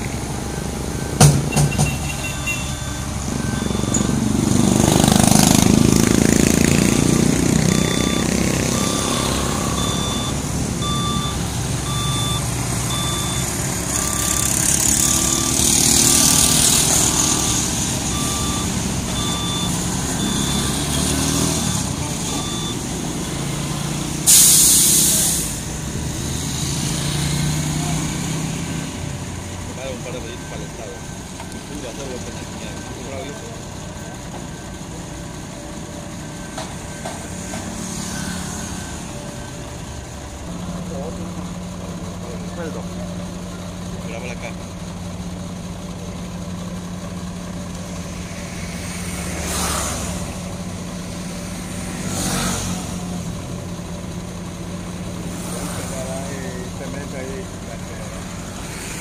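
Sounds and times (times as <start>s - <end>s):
reversing alarm beeping: 0.0s - 25.7s, 27.1s - 41.4s
diesel truck engine running: 0.0s - 59.0s
air brakes hissing: 24.2s - 25.7s.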